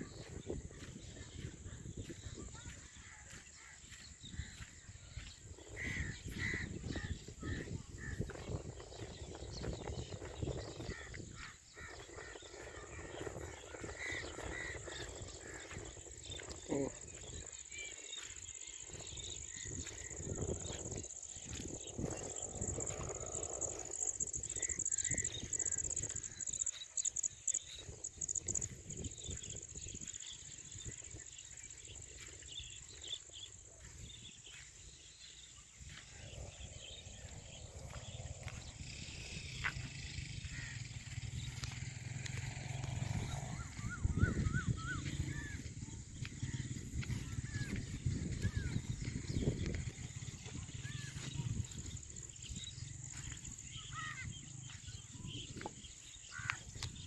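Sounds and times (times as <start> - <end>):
birds chirping: 0.0 - 57.0
high insect drone: 18.4 - 30.5, 36.1 - 57.0.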